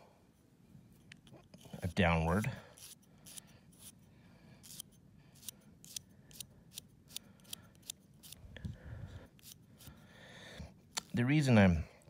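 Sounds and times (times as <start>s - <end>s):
nail file scraping dog's claws: 2.7s - 8.4s, 9.3s - 10.0s.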